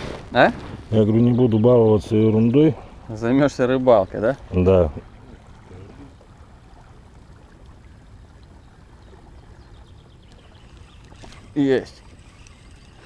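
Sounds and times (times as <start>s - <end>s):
water lapping and trickling: 0.0s - 13.0s.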